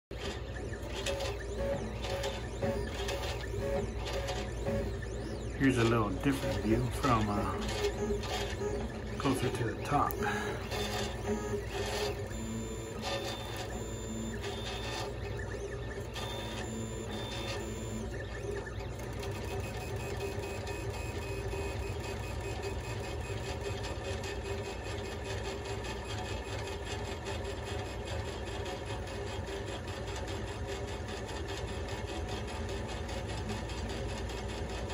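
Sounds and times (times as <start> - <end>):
printer hum: 0.1 - 34.9
stepper motors whining: 0.2 - 23.3.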